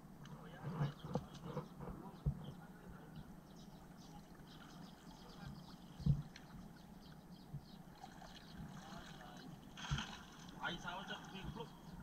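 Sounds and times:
shallow water stirring: 3.9s - 11.8s.

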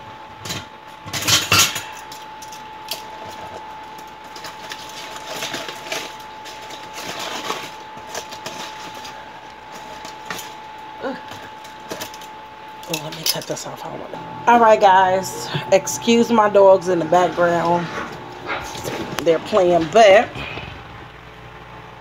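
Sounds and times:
aluminum foil crinkling: 1.1s - 13.9s, 17.1s - 20.0s.

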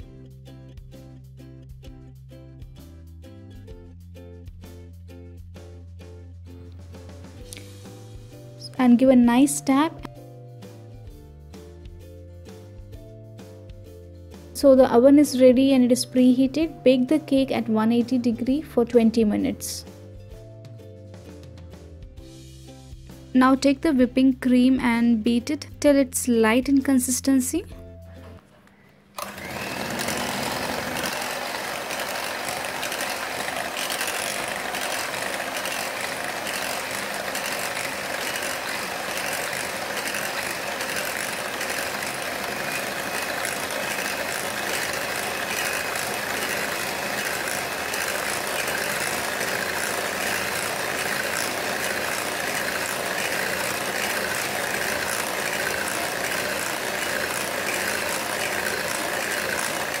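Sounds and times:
electric hand mixer whipping: 29.2s - 60.0s.

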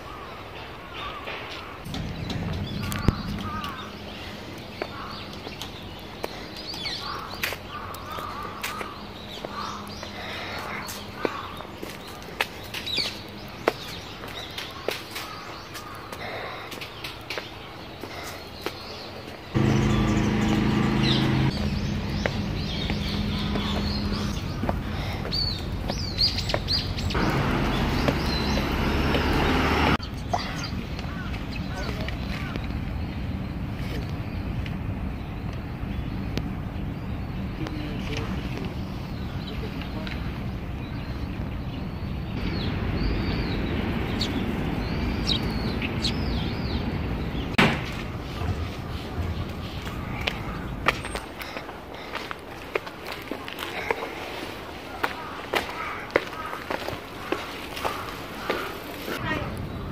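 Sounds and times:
small birds chirping: 0.0s - 59.9s
traffic noise: 0.0s - 59.9s
low engine hum: 19.5s - 30.2s.

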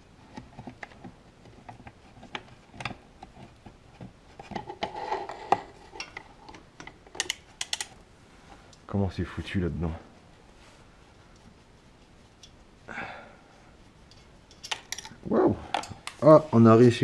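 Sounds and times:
rubbing and scraping on metal: 0.0s - 6.6s, 9.2s - 12.9s.

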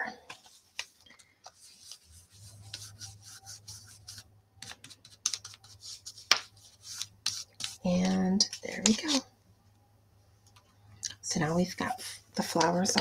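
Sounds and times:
brush scratching on paper: 1.6s - 9.2s.

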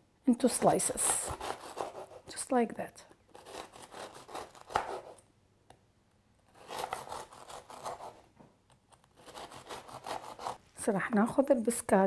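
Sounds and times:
serrated knife sawing biscotti: 1.0s - 2.4s, 3.3s - 5.2s, 6.5s - 8.2s, 9.2s - 10.6s.

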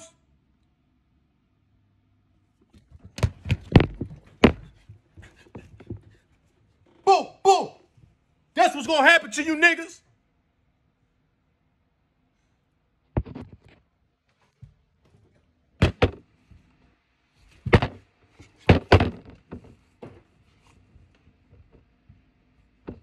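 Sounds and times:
phone knocking against table: 15.8s - 16.2s.

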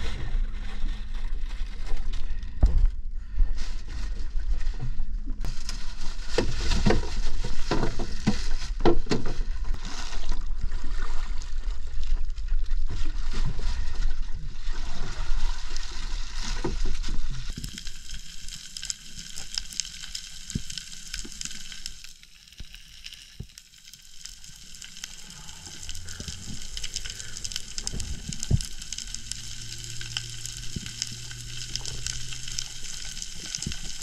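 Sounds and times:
plastic bag rustling: 0.0s - 2.6s, 3.5s - 10.4s, 24.0s - 34.0s
low rumble: 0.0s - 6.4s, 24.5s - 34.0s
underwater crackling hiss: 17.5s - 34.0s.

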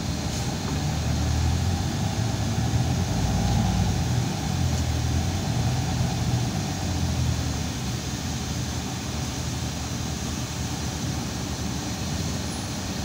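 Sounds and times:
bus engine running: 0.0s - 13.0s
road noise: 0.0s - 13.0s.

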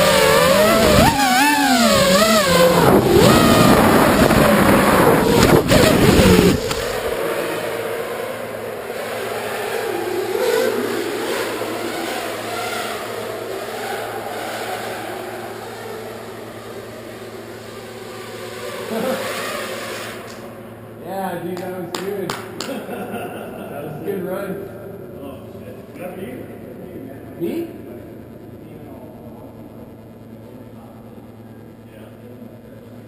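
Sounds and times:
drone landing on concrete: 0.0s - 7.4s
quadcopter motors whining: 0.0s - 20.7s.

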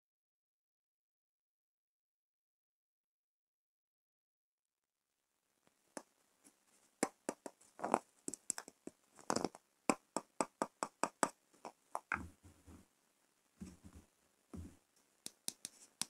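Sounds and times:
fingernails tapping on soap: 7.0s - 12.3s.

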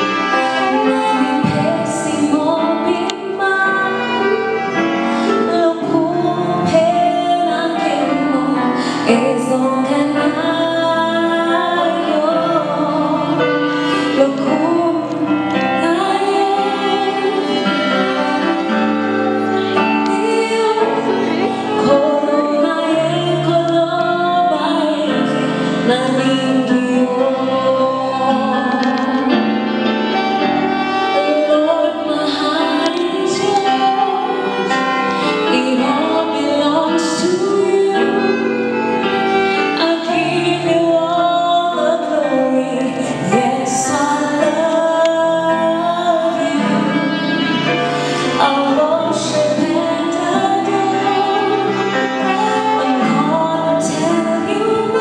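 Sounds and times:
woman singing: 0.0s - 30.3s, 31.0s - 55.0s
instrumental backing: 0.0s - 55.0s.

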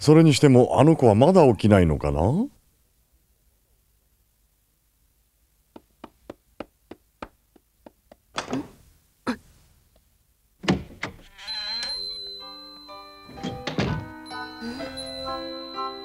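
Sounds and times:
cartoon footsteps on wooden stairs: 5.7s - 8.7s.

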